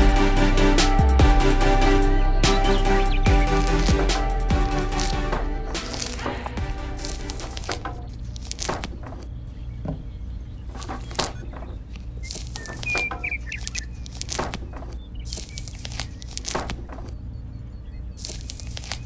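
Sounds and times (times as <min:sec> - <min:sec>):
wooden strips cracking and snapping: 0:03.3 - 0:09.4, 0:10.7 - 0:17.2, 0:18.2 - 0:19.0.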